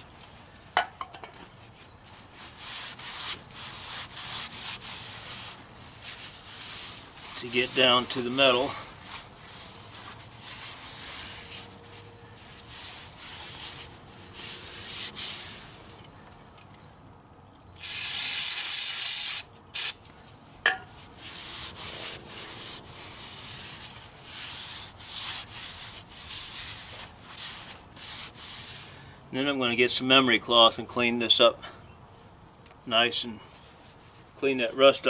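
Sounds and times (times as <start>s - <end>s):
rag rubbing on metal: 1.7s - 15.9s, 20.9s - 28.9s.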